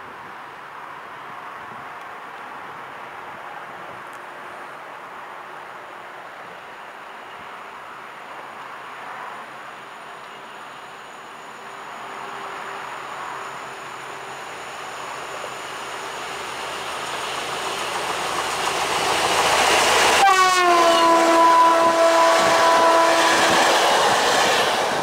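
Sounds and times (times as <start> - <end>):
diesel train passing: 6.5 - 25.0
locomotive horn blast: 20.1 - 23.6.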